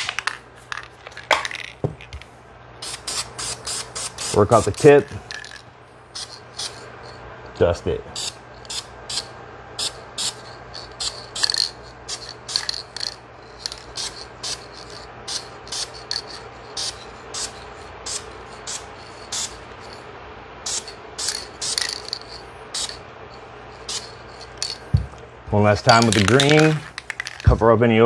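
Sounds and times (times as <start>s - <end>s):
low steady hum: 0.0s - 28.0s
spray paint can hissing: 2.8s - 5.6s, 6.2s - 6.8s, 8.2s - 20.0s, 20.7s - 23.0s, 23.8s - 24.8s.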